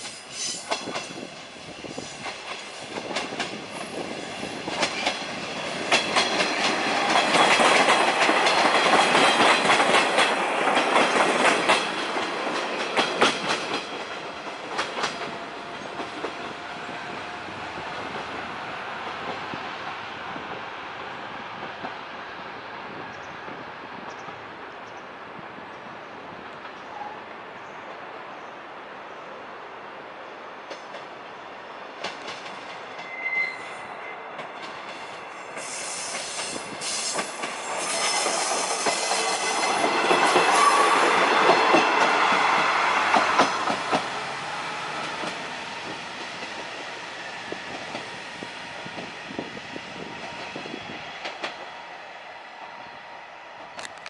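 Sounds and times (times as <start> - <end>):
train wheels clattering over joints: 4.6 - 16.4.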